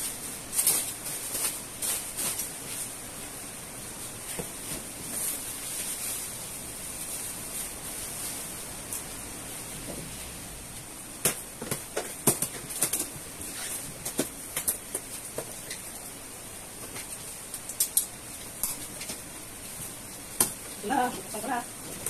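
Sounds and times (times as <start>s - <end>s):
tape and cardboard crackling: 0.0s - 9.1s, 10.8s - 22.0s.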